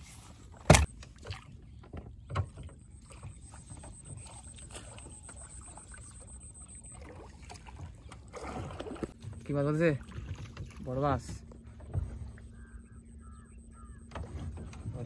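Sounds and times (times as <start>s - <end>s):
fish landing with a thud: 0.6s - 1.0s
faint high whine: 2.8s - 7.9s.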